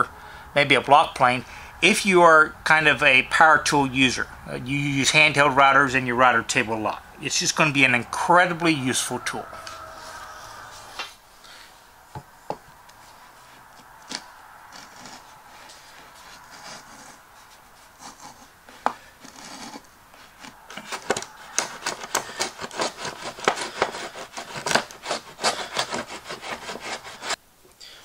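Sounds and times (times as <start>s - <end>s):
router plane scraping wood: 13.1s - 27.4s.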